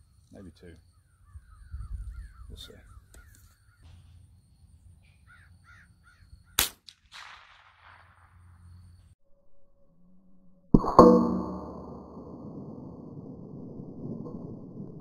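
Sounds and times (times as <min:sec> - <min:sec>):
crows cawing: 0:05.2 - 0:06.6
rifle shot with echo: 0:06.6 - 0:08.5.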